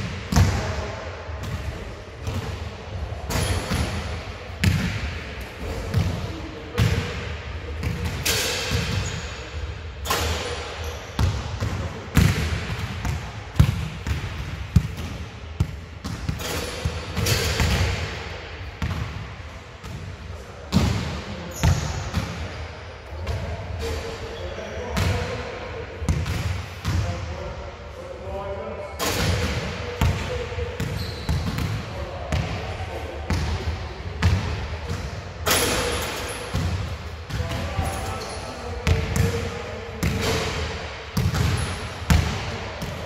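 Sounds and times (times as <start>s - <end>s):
basketballs bouncing on court: 0.0s - 0.8s, 3.2s - 7.2s, 7.8s - 9.2s, 10.1s - 20.1s, 20.7s - 22.5s, 25.0s - 25.2s, 26.1s - 27.2s, 29.1s - 32.6s, 33.3s - 38.0s, 38.8s - 43.0s.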